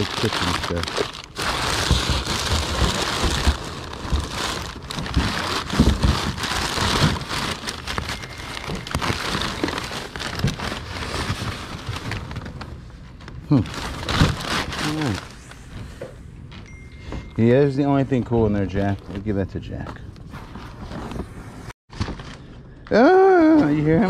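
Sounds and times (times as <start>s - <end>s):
newspaper rustling and crinkling: 0.0s - 15.6s, 21.9s - 22.6s.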